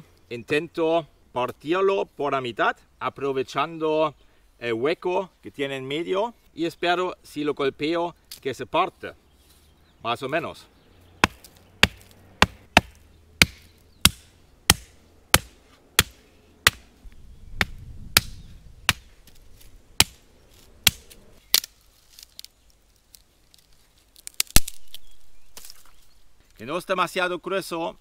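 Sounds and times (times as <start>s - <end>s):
branch cracking: 11.2s - 16.9s, 17.6s - 26.6s
stone knocking on branch: 11.2s - 16.9s.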